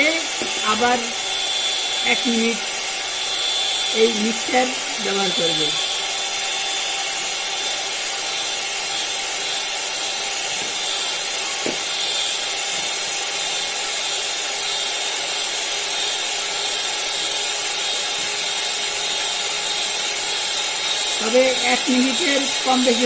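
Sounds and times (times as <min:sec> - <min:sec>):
electric hand mixer whisking: 0:00.0 - 0:23.0.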